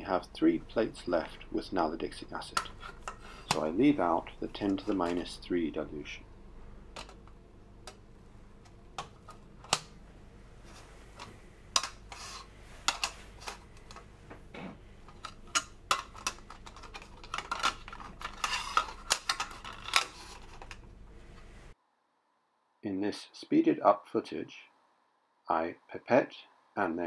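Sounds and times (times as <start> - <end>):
plastic dishes clicking together: 15.1 - 20.8.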